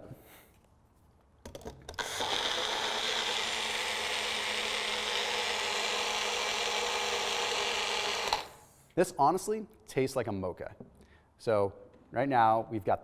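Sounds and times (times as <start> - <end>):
blender motor running: 2.0 - 8.7.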